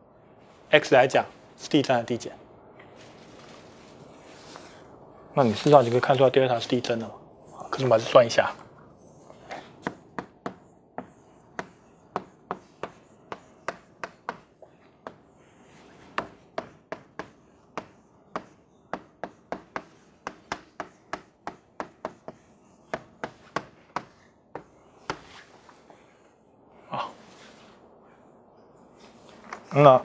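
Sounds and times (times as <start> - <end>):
chalk tapping and scratching: 9.4 - 26.0.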